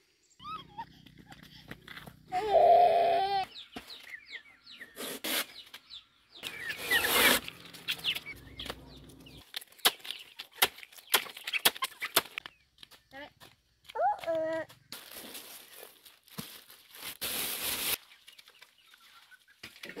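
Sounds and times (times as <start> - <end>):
chickens clucking: 6.4 - 9.4.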